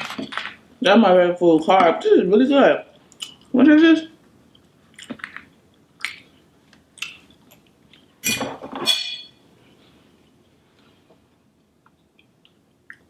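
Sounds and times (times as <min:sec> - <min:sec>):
fork clattering down: 0:08.2 - 0:09.3.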